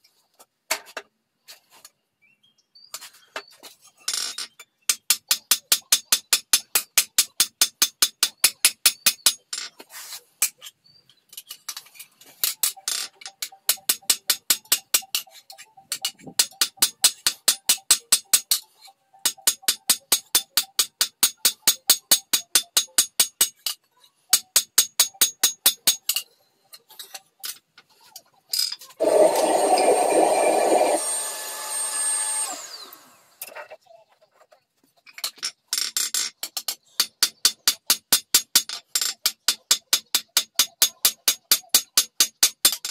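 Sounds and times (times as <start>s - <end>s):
power tool running: 29.0s - 33.4s.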